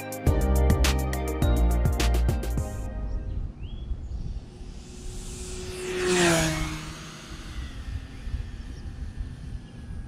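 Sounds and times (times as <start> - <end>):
model plane propeller buzz: 4.2 - 10.0.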